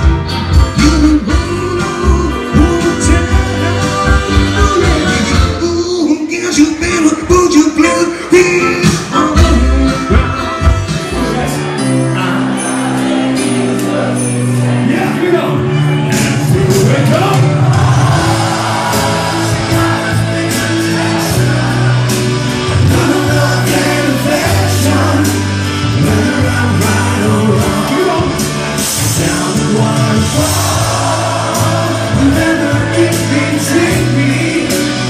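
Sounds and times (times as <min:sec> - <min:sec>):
loud amplified music: 0:00.0 - 0:35.0
man singing into a microphone: 0:00.7 - 0:12.4, 0:19.7 - 0:35.0.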